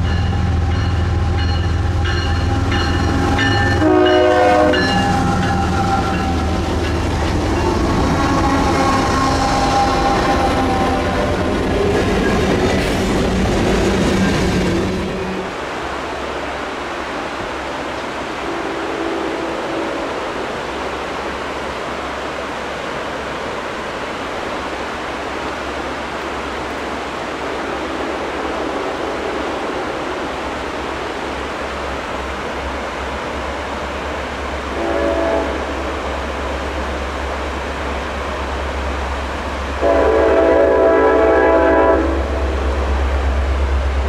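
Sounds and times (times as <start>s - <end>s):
locomotive horn: 0.0s - 6.8s, 7.4s - 12.1s, 18.4s - 20.2s, 34.7s - 36.0s, 39.8s - 42.7s
river rapids rushing: 0.0s - 44.0s.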